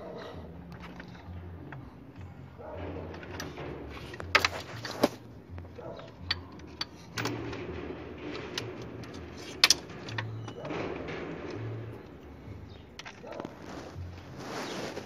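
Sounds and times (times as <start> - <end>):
handling noise: 0.0 - 15.0
socket wrench clicking on bolts: 6.0 - 10.7.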